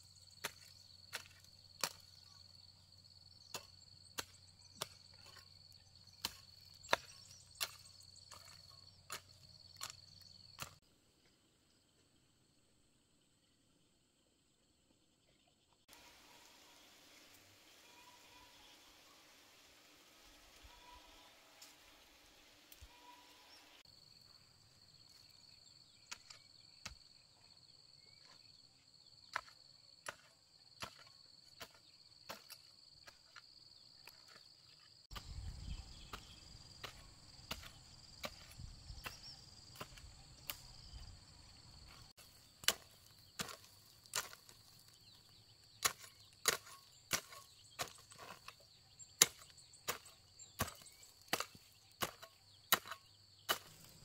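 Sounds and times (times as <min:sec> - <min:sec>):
hoe chopping into dry soil: 0:00.4 - 0:02.3, 0:03.4 - 0:10.0, 0:29.2 - 0:33.4, 0:35.1 - 0:41.1, 0:41.8 - 0:54.0.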